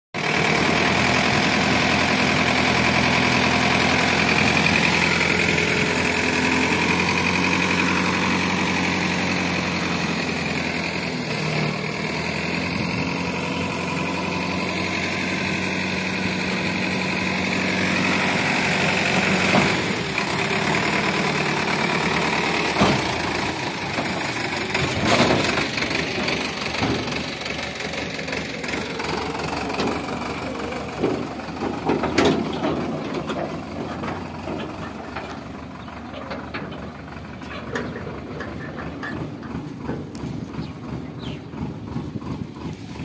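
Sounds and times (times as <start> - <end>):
tractor diesel engine running: 0.1 - 43.0
dull thumps of sliding load: 18.4 - 27.6, 29.4 - 41.1.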